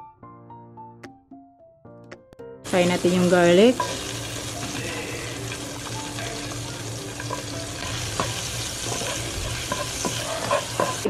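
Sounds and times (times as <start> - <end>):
garlic sizzling in butter: 2.7 - 11.0
spatula scraping and tapping pan: 3.7 - 5.6, 7.2 - 11.0.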